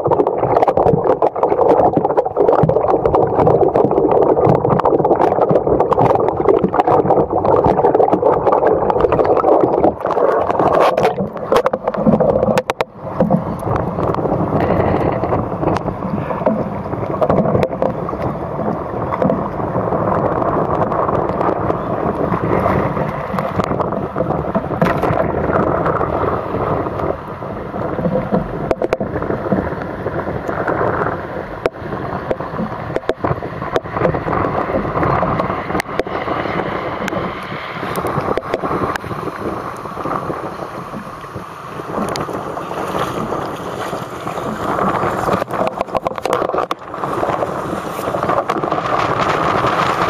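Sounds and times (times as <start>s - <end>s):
water around kayak: 0.0s - 50.0s
wind buffeting microphone: 0.0s - 50.0s
sharp clicks and knocks: 9.0s - 19.5s, 23.2s - 25.7s, 31.6s - 36.1s, 44.5s - 47.4s.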